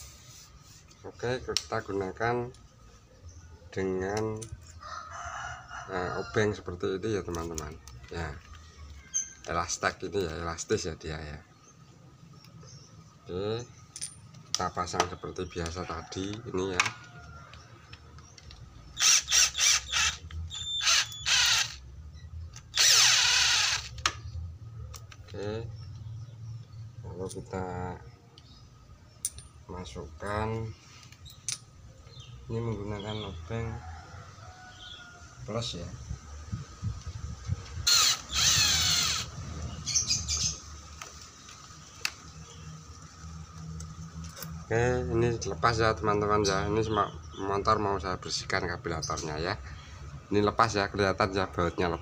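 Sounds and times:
cordless drill whirring: 19.0 - 21.8, 22.7 - 24.2, 37.8 - 39.3.

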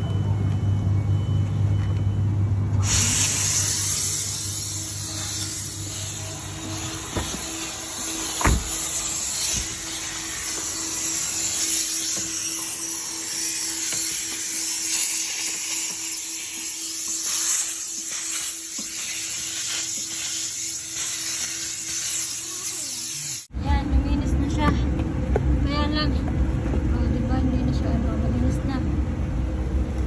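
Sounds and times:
car vacuum suction hiss: 2.8 - 23.5.

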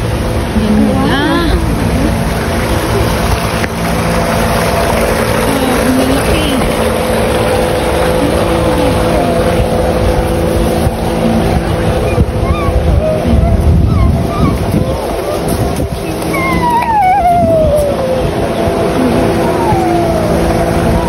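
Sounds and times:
boat motor humming: 0.0 - 21.0
rush of noise: 0.0 - 21.0.

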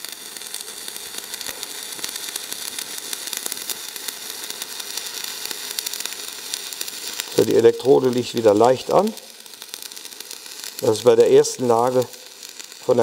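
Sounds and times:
welding arc crackling: 0.0 - 13.0.

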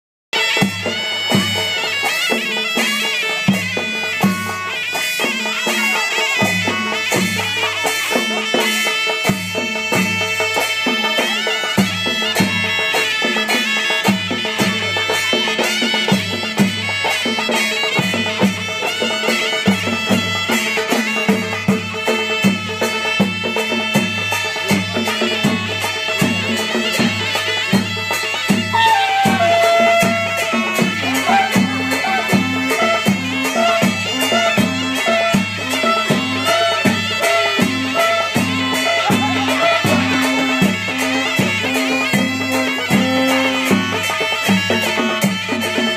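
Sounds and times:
high reedy melody: 0.4 - 45.9
barrel drums beating: 15.8 - 45.7.

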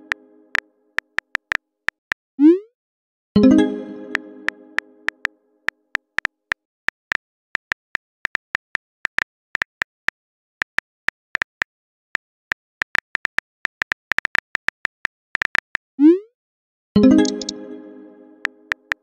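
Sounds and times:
phone keyboard key clicks: 7.6 - 15.8.

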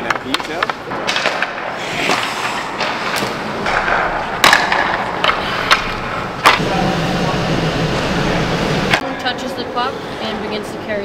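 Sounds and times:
hockey sticks and pucks clacking: 0.0 - 6.6
skates scraping on ice: 0.6 - 6.6.

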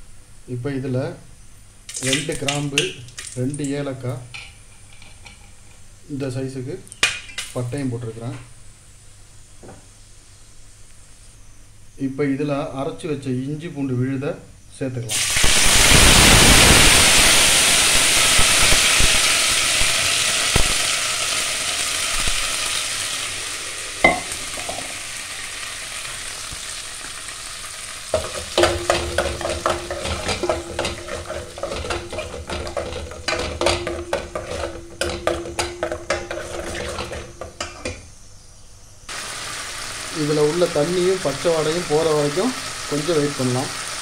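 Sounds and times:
paste sizzling in hot oil: 15.1 - 37.9, 39.1 - 44.0
ladle scraping pot: 28.1 - 38.0.

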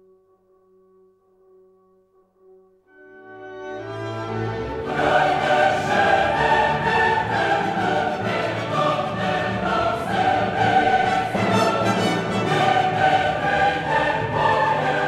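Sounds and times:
choir singing with orchestra: 3.4 - 15.0.

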